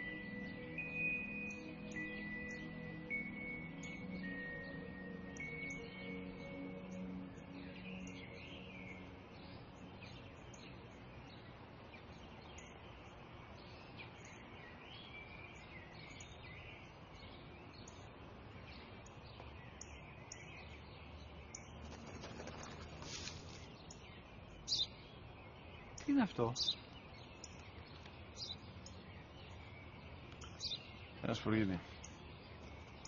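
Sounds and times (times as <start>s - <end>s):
small birds chirping: 0.0s - 33.0s
brief rustle: 21.8s - 23.7s.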